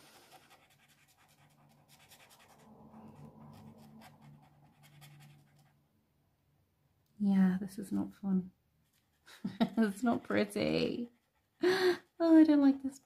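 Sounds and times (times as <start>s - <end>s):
felt pen scratching on paper: 0.0s - 5.7s, 8.8s - 11.5s.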